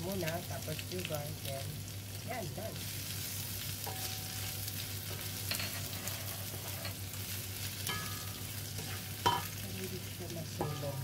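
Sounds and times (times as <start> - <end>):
vegetables sizzling in oil: 0.0 - 11.0
wooden spatula scraping a pan: 5.1 - 7.0, 8.7 - 9.3.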